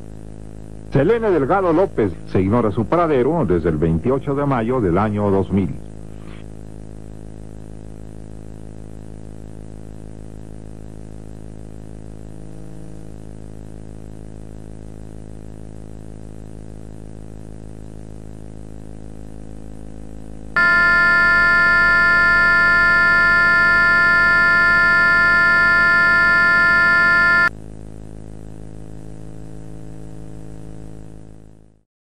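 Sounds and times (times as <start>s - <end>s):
electronic hum: 20.5s - 27.5s
multi-pitch alert tone: 20.6s - 27.5s.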